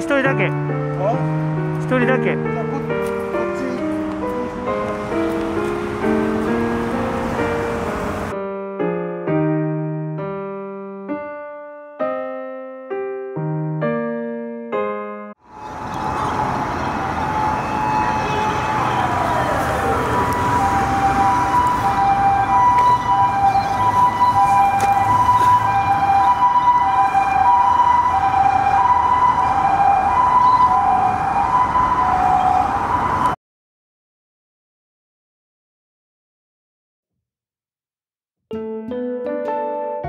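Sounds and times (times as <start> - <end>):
road traffic rush: 0.0 - 8.4, 15.4 - 33.4
two-tone ambulance siren: 15.4 - 33.4.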